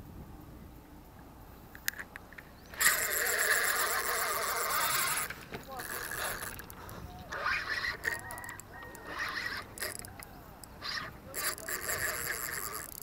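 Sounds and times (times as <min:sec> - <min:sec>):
fishing reel winding: 0:02.8 - 0:13.0.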